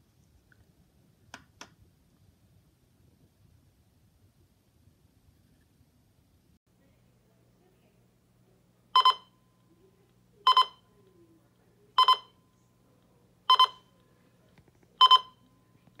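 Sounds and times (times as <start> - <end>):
alarm clock double beeps: 9.0 - 9.3, 10.5 - 10.8, 12.0 - 12.4, 13.5 - 13.9, 15.0 - 15.4.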